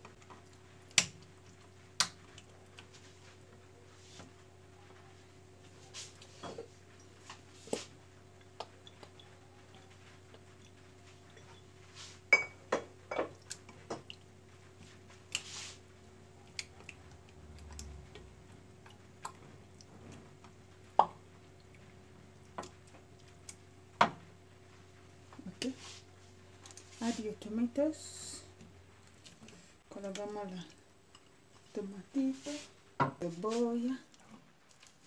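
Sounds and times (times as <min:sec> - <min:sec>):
hands squishing wet fish: 0:13.4 - 0:23.9.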